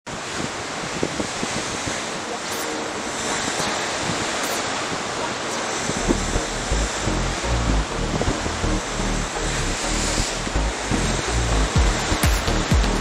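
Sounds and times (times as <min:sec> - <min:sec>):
wind buffeting microphone: 0:00.1 - 0:08.8
sea waves washing: 0:00.1 - 0:13.0
low bass line music: 0:06.0 - 0:13.0.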